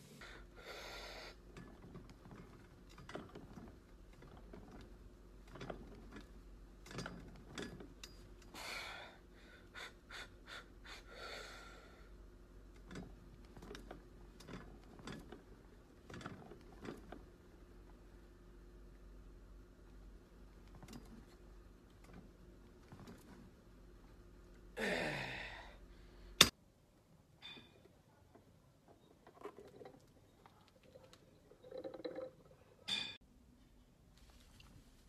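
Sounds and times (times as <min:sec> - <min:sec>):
steady low hum: 0:00.0 - 0:35.0
person exhaling breathily: 0:24.8 - 0:26.1.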